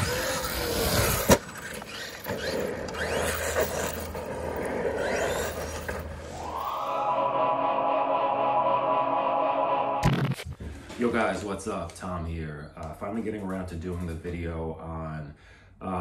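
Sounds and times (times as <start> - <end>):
tyre and chassis noise: 0.0 - 6.4
electric motor whining: 0.0 - 7.5
background music: 6.4 - 10.5.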